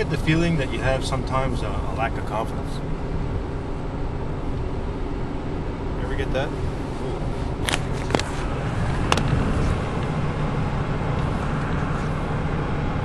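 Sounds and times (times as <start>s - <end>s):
truck engine and road rumble: 0.0s - 13.0s.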